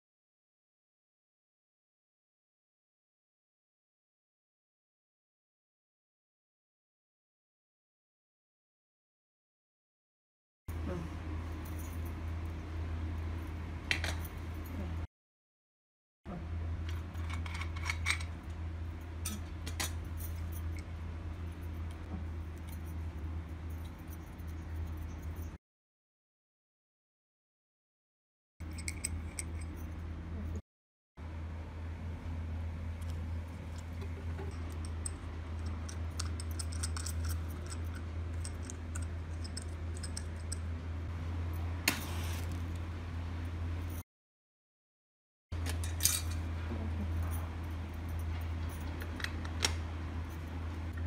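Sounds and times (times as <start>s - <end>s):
steady low hum: 10.7s - 15.1s, 16.3s - 25.6s, 28.6s - 30.6s, 31.2s - 44.0s, 45.6s - 51.0s.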